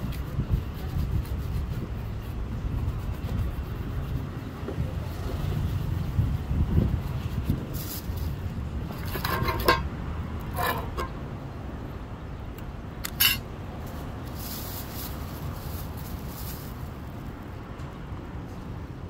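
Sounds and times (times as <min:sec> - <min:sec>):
brushes and tins clinking on stone: 0:08.8 - 0:11.2, 0:13.1 - 0:13.5
plastic bag rustling: 0:14.3 - 0:17.2.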